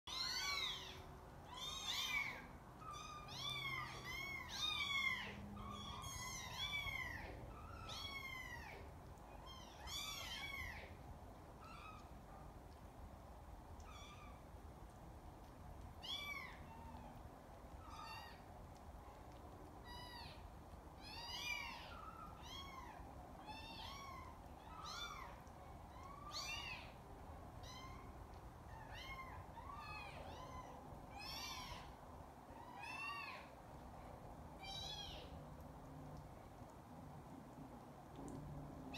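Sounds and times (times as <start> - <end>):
kittens mewing: 0.1 - 11.0.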